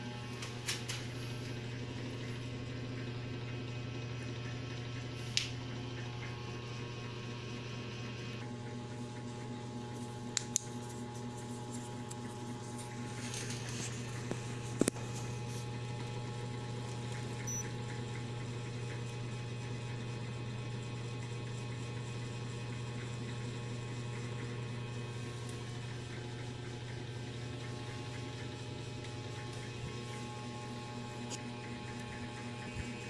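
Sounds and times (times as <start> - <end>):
low electrical hum: 0.0 - 33.0.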